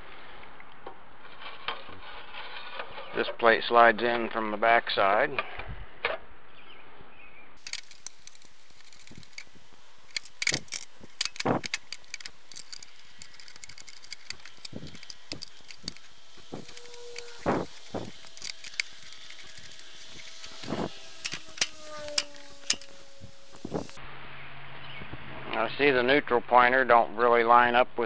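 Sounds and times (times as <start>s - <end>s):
metal clicks and clinks: 7.6s - 23.0s.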